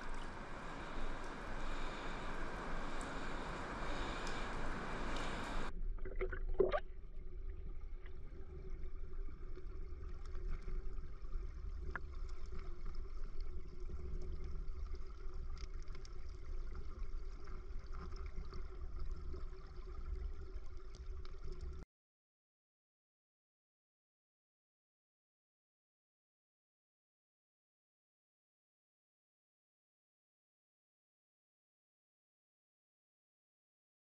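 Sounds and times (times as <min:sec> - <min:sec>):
muffled creek water gurgling: 0:00.0 - 0:21.8.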